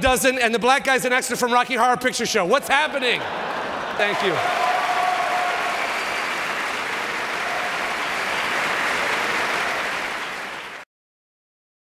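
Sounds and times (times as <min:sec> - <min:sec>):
audience applauding: 0:02.9 - 0:10.8.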